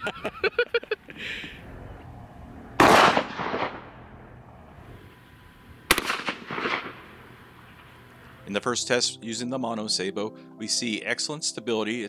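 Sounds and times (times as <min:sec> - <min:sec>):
shotgun bang with echo: 0:02.8 - 0:03.9, 0:05.9 - 0:07.1.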